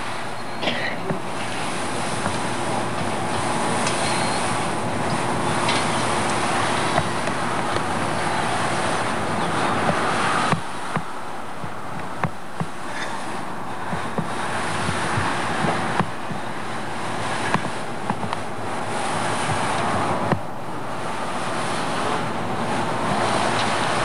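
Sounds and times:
wind rushing over microphone: 1.0 - 24.0.

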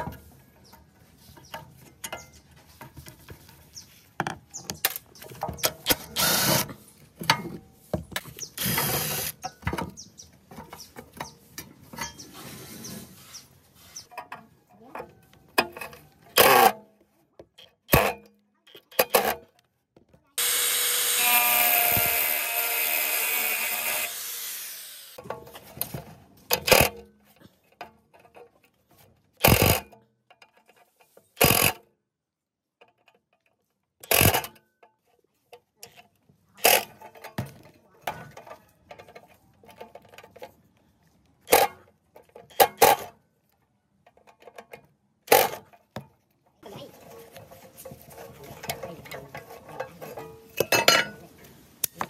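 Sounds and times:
cordless drill running: 6.2 - 6.7, 8.6 - 9.3, 20.4 - 25.2.

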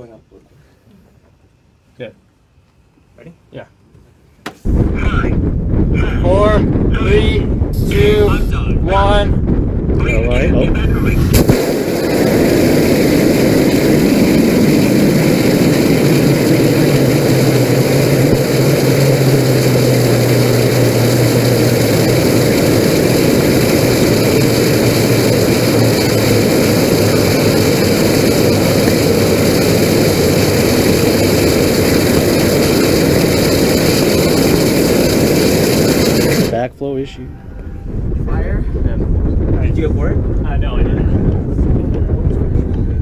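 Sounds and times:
low hum: 4.6 - 43.0
rocket motor roaring: 4.7 - 36.7.

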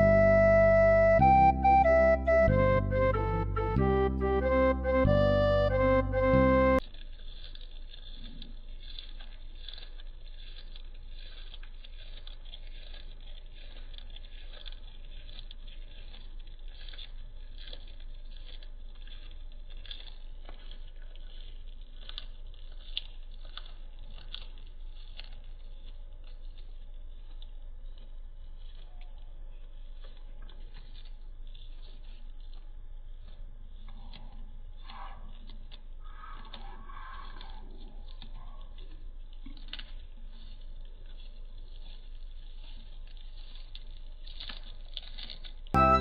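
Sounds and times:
music: 0.0 - 6.8, 45.8 - 46.0
rabbit chewing grass: 0.0 - 46.0.

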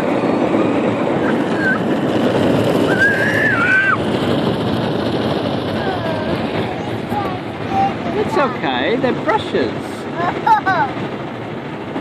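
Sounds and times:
child calling: 1.2 - 1.9, 2.9 - 4.0, 5.8 - 8.0.

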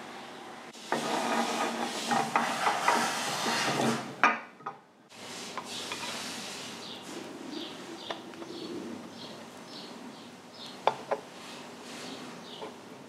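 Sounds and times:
scraping and rubbing metal: 0.7 - 4.2, 5.2 - 7.4.

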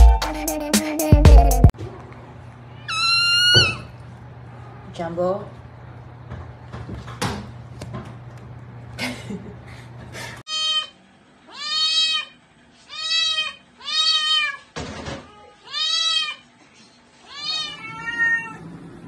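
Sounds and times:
cat meowing: 2.8 - 3.9, 10.5 - 10.9, 11.5 - 16.4, 17.2 - 18.6.

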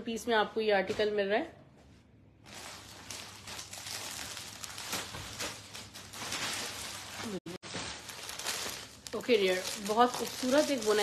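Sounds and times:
dense rustling and crackling: 2.4 - 11.0.

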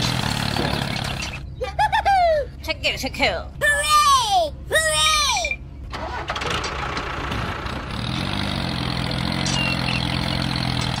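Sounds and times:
tractor engine running: 0.0 - 1.6, 5.7 - 11.0.

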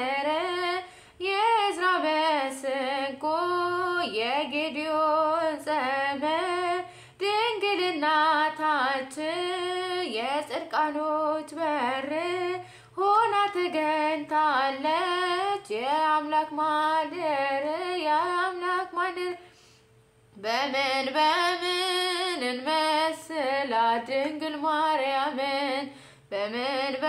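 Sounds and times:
woman singing a hymn solo: 0.0 - 19.4, 20.4 - 27.0.

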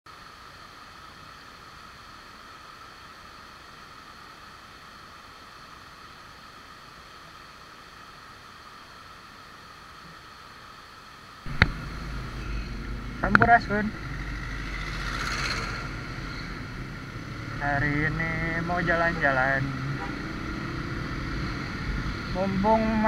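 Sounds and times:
waterfall rushing: 11.4 - 23.0.

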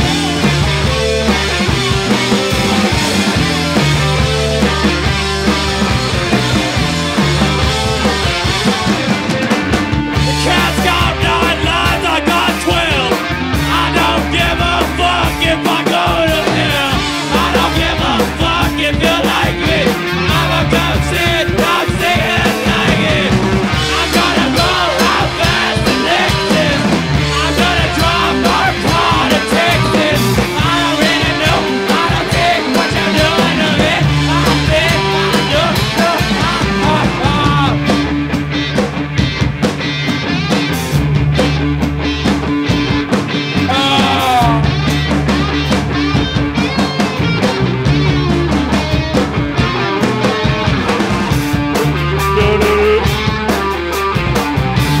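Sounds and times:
bass guitar: 0.0 - 55.0
drum kit: 0.0 - 55.0
electric guitar: 0.0 - 55.0.

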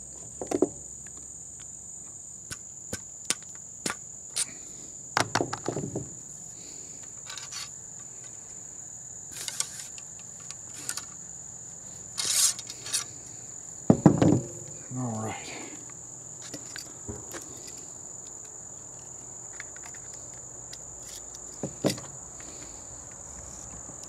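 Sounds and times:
high insect drone: 0.0 - 24.0
ramrod knocking in barrel: 13.9 - 14.8.

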